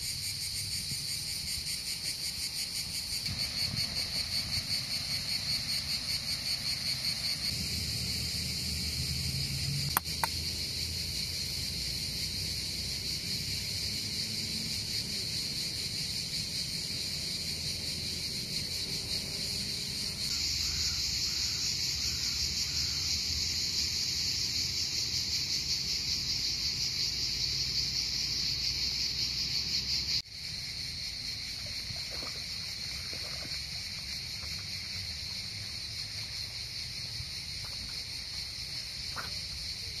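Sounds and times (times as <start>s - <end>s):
insects chirping trill: 0.0s - 40.0s
sharp clicks: 9.9s - 10.4s.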